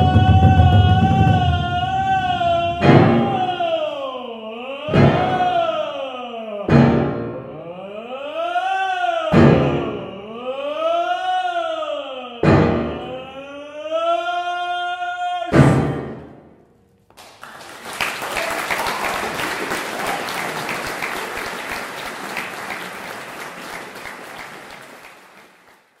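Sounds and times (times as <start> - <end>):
audience applauding: 17.1 - 26.0.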